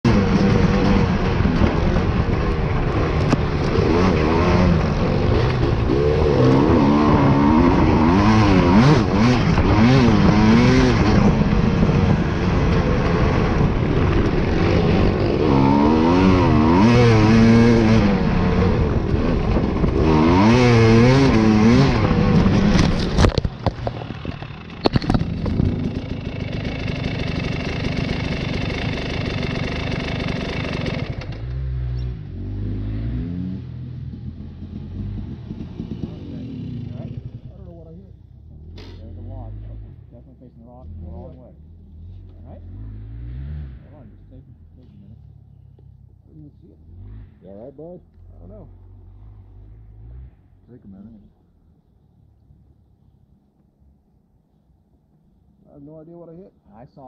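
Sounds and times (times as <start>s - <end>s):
motorcycle engine revving: 0.0s - 52.0s.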